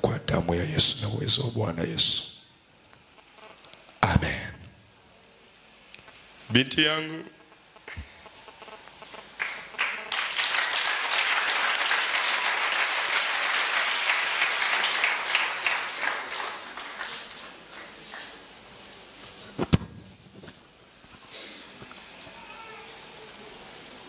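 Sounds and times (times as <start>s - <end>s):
crowd applauding: 9.4s - 18.5s.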